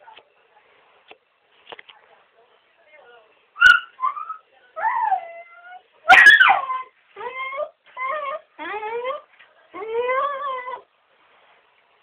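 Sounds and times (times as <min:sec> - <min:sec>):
dogs whining and yelping: 0:03.6 - 0:09.2.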